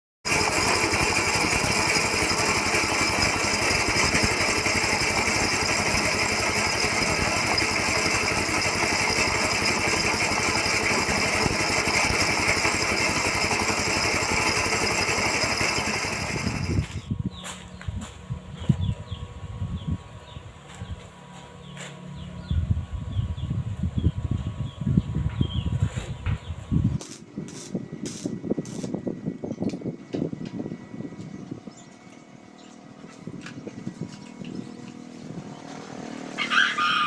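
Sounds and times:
petrol engine running: 0.3 - 17.2.

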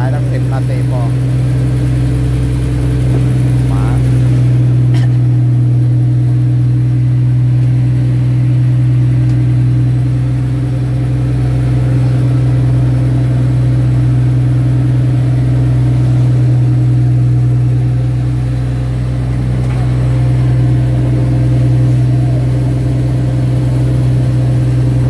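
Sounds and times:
boat diesel engine droning: 0.0 - 25.0.

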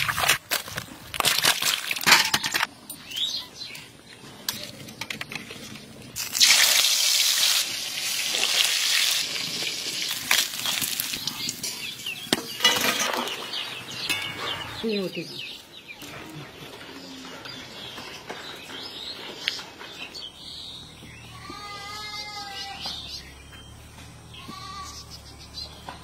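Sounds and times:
hot oil sizzling in a pan: 6.2 - 11.5.

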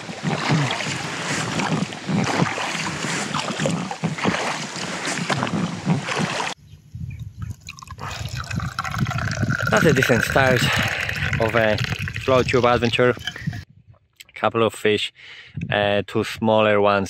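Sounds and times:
water splashing and sloshing: 0.0 - 6.6, 7.4 - 13.7.

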